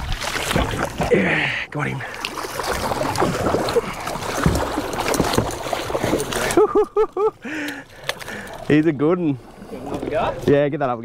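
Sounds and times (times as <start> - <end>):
fish thrashing: 0.0 - 1.4, 2.0 - 8.8
water splashing against boat: 0.0 - 11.0.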